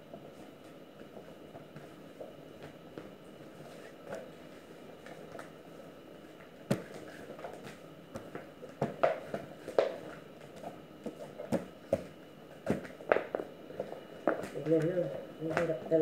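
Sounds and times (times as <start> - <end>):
dough slapping and knocking: 6.6 - 13.4.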